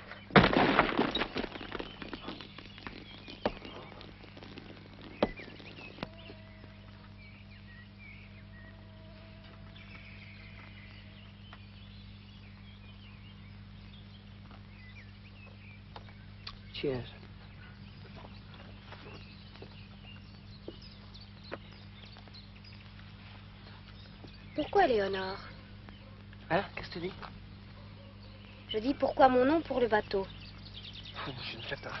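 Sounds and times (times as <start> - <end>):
steady low hum: 0.0 - 32.0
glass bottle smashing: 0.3 - 3.8
faint bird chirps: 1.1 - 32.0.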